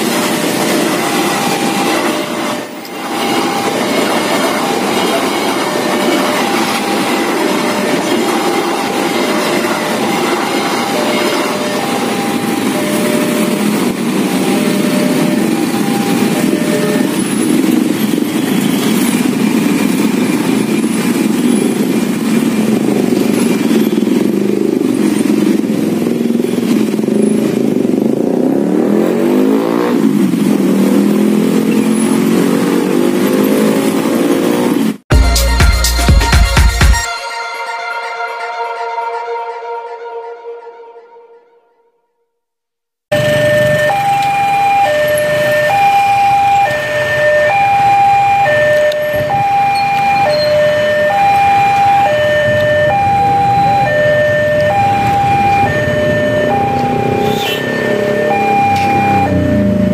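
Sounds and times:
level crossing two-tone alarm: 0:00.0 - 0:28.0, 0:43.1 - 0:59.9
motorcycle engines idling and revving: 0:00.0 - 0:35.1, 0:43.1 - 0:59.9
passing train: 0:00.0 - 0:41.7, 0:43.1 - 0:59.9.

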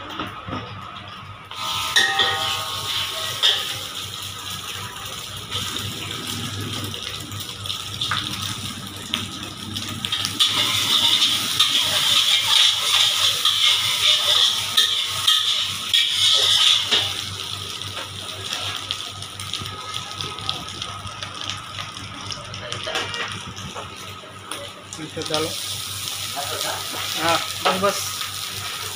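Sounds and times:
food sizzling in a wok: 0:01.5 - 0:28.9
metal clinking on pan: 0:02.0 - 0:03.8, 0:10.4 - 0:17.2
metal spatula scraping a wok: 0:10.4 - 0:17.2.

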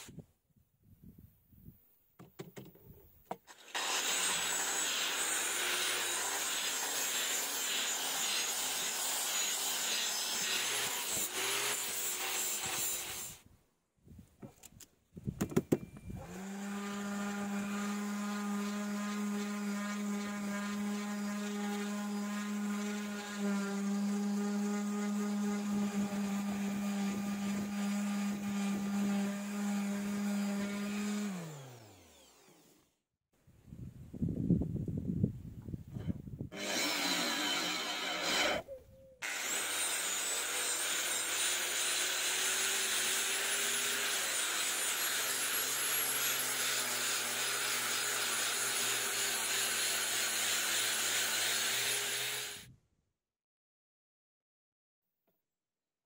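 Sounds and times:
sanding tool whirring rasp: 0:03.5 - 0:13.4, 0:16.3 - 0:32.8, 0:36.6 - 0:52.6.

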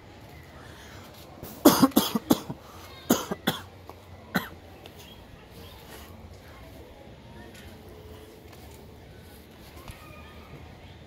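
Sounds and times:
person coughing: 0:01.6 - 0:03.7.

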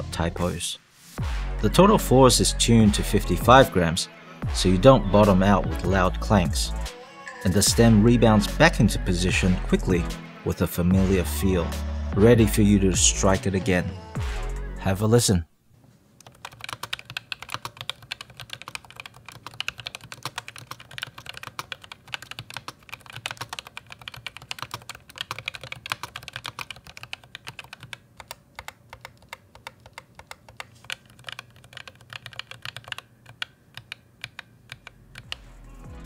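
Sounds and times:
fast keyboard typing: 0:16.2 - 0:35.5.

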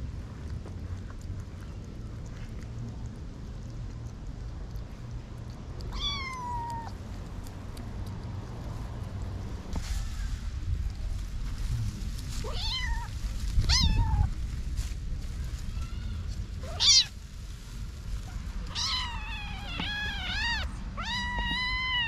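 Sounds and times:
kittens meowing: 0:05.9 - 0:07.0, 0:12.4 - 0:14.3, 0:15.7 - 0:17.2, 0:18.7 - 0:22.0.

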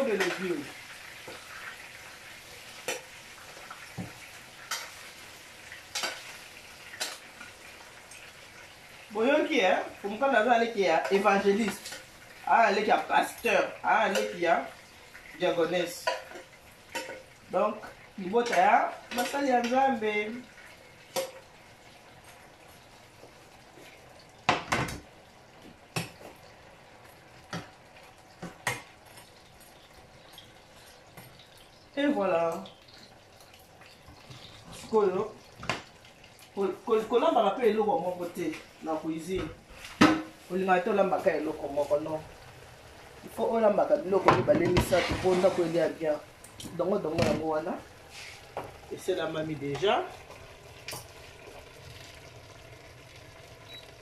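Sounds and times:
greens sizzling in a pot: 0:00.0 - 0:54.0
utensils clinking against cookware: 0:16.0 - 0:17.3.

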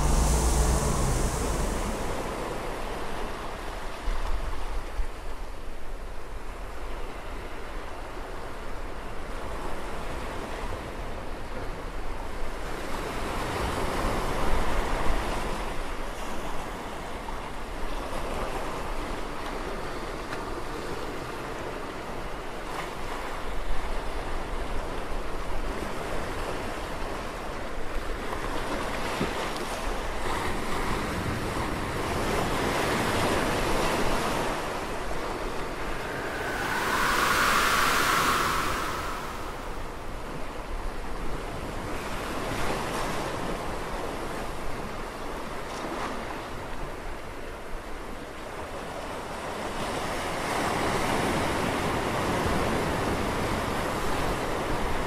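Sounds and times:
wind-like rushing noise: 0:00.0 - 0:03.8, 0:33.6 - 0:40.5.

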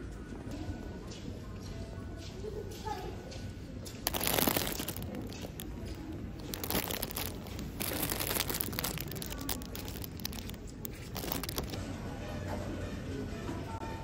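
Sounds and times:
plastic bags crinkling: 0:04.0 - 0:11.8.

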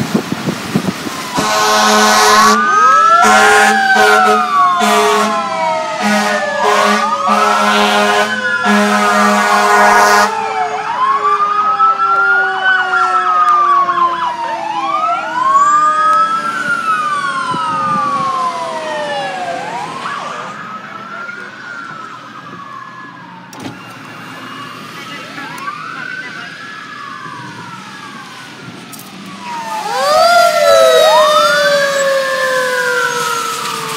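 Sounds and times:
fire engine sirens wailing: 0:00.0 - 0:33.9
siren yelp: 0:01.0 - 0:33.9
low siren tone sliding down: 0:01.2 - 0:24.8, 0:25.4 - 0:33.9
truck air horn blasts: 0:01.3 - 0:05.4, 0:06.0 - 0:10.4.

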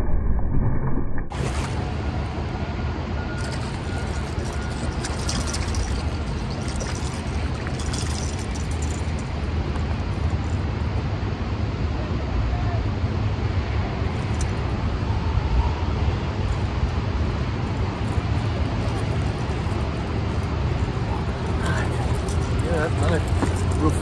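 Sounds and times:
steady low rumble: 0:00.0 - 0:24.0
fish splashing and thrashing in water: 0:01.3 - 0:02.5, 0:03.2 - 0:10.5.

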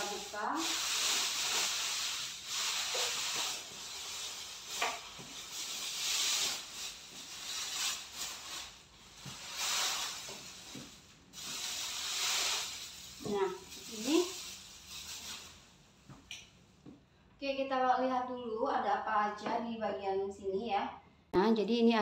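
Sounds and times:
plastic wrapping rustling: 0:00.0 - 0:16.1.

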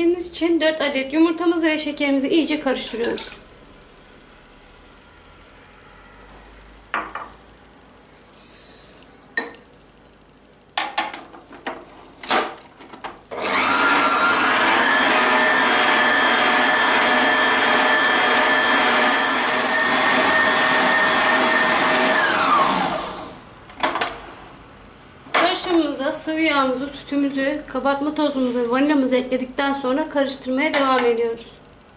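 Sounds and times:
electric stand mixer whirring: 0:13.4 - 0:23.4.

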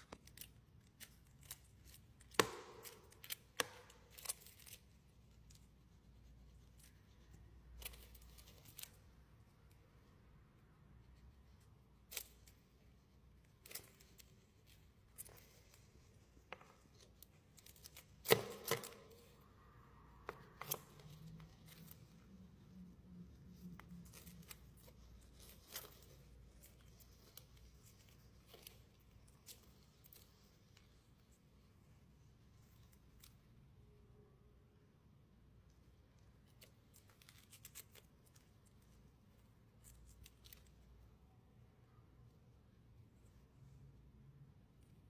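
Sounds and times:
scorpions clicking and scratching: 0:00.0 - 0:09.3, 0:12.0 - 0:31.3.

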